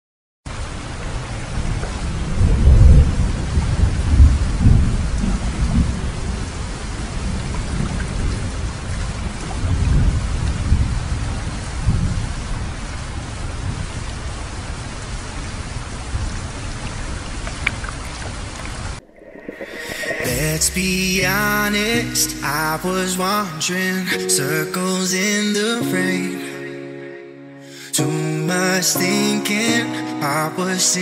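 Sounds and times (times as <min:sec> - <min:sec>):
rain falling on water: 0:00.5 - 0:23.3
deep low rumbles: 0:19.6 - 0:23.2.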